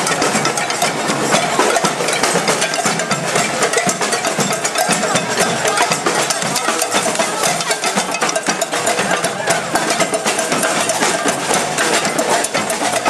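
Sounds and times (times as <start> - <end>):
crowd din: 0.0 - 13.0
drums playing rapidly: 0.0 - 13.0
wood block strikes: 0.0 - 13.0.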